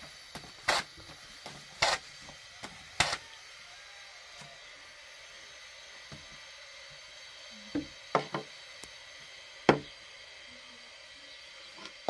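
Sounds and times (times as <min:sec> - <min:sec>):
room tone hiss: 0:00.0 - 0:12.0.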